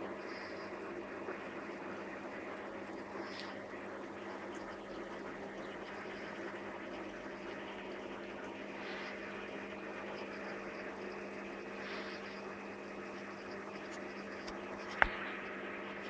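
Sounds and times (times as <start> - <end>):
aquarium pumps humming: 0.0 - 16.0
water circulating: 0.0 - 16.0.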